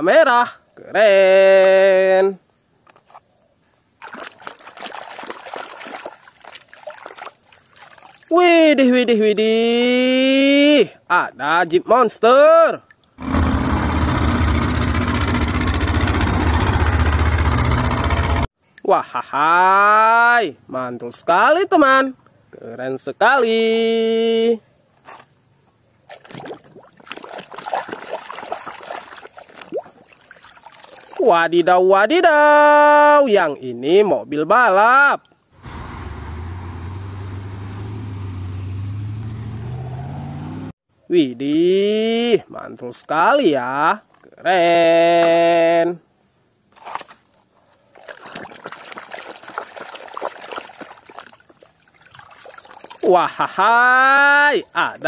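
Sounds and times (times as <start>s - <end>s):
water splashing in a basin: 4.0s - 8.3s, 26.1s - 31.4s, 47.9s - 53.6s.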